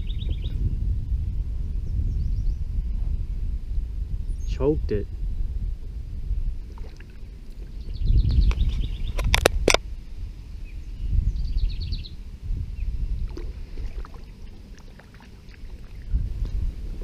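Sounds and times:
low rumble: 0.0 - 9.2, 9.8 - 17.0.

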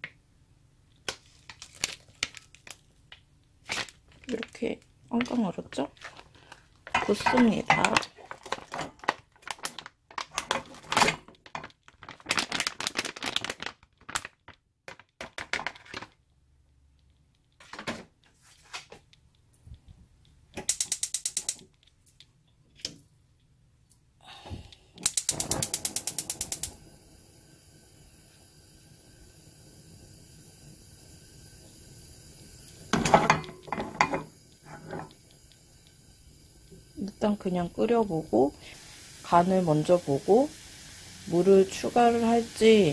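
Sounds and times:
gas burner hissing: 6.0 - 9.1, 20.6 - 21.6, 24.2 - 42.9
frozen block clattering into pot: 6.8 - 14.2, 32.9 - 35.1
gas igniter clicking: 20.6 - 21.6, 25.0 - 26.8.

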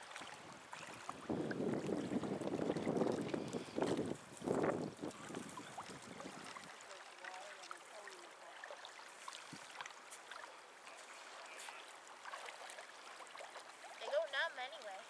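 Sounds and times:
feet splashing in water: 0.0 - 15.0
water lapping at shore: 0.0 - 15.0.

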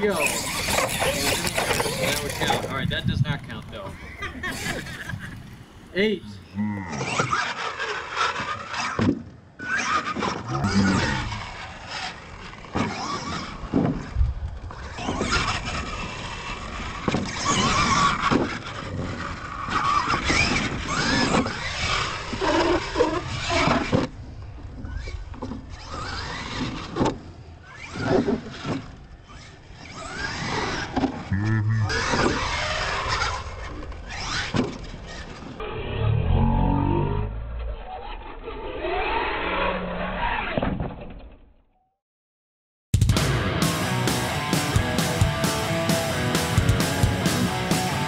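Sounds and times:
rc truck motor whining: 0.0 - 2.7.

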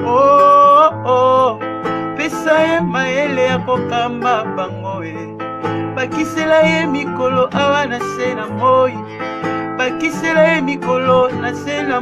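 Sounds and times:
song with guitar bass and vocals: 0.0 - 12.0.

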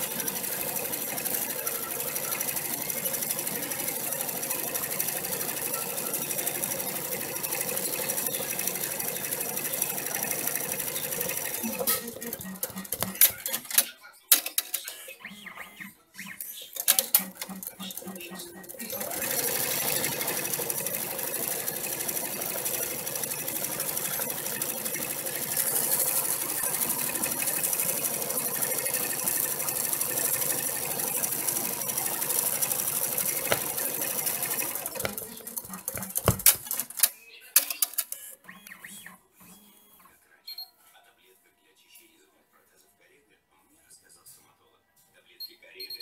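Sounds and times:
embroidery machine stitching: 0.0 - 13.6, 16.8 - 37.1
sharp clicks and knocks: 35.0 - 36.9.

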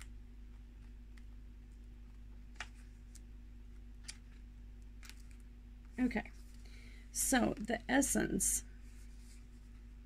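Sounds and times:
low room hum: 0.0 - 10.0
book pages clicking: 2.5 - 3.3, 4.0 - 5.4.

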